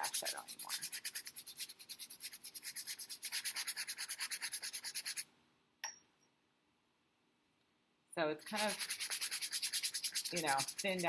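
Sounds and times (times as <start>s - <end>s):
brush scrubbing paint on canvas: 0.0s - 5.3s, 8.4s - 11.0s.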